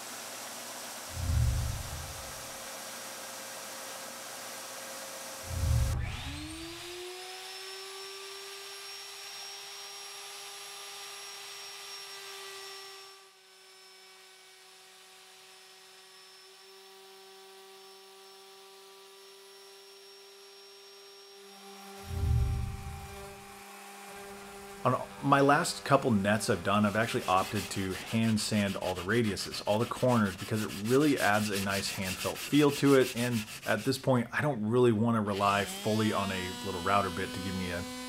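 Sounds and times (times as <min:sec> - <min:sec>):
low thump: 0:01.1 - 0:02.4, 0:05.5 - 0:06.0, 0:22.1 - 0:23.3
low hum: 0:01.1 - 0:02.6, 0:05.4 - 0:06.6, 0:22.0 - 0:23.5
router table whining: 0:05.1 - 0:33.8, 0:35.3 - 0:38.0
power tool motor whining: 0:05.3 - 0:28.3, 0:35.3 - 0:38.0.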